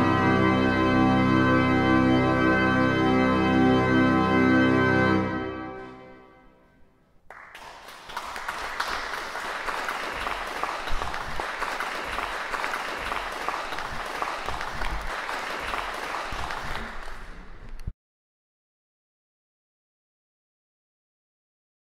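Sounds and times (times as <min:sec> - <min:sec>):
pipe organ chord: 0:00.0 - 0:06.9
audience applause: 0:07.3 - 0:17.8.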